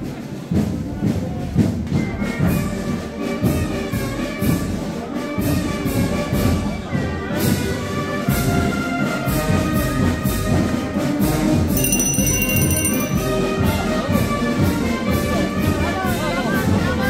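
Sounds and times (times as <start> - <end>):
brass band playing a march: 2.3 - 11.7
percussion beat: 11.7 - 13.9.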